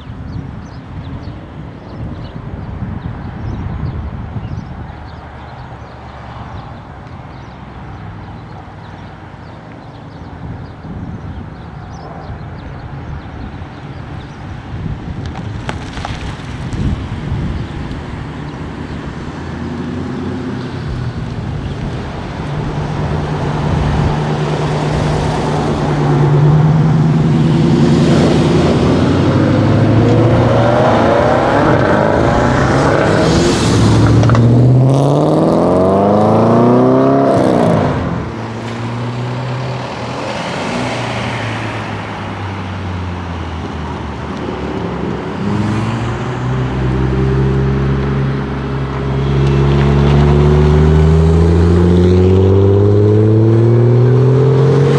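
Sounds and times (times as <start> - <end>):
cars pulling away: 11.4 - 54.9
car accelerating hard: 21.9 - 42.4, 44.5 - 54.9.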